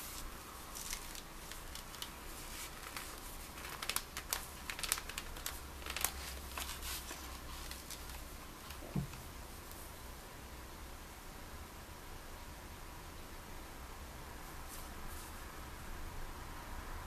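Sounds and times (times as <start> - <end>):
leather sheath rustling and creaking: 0.1 - 8.2.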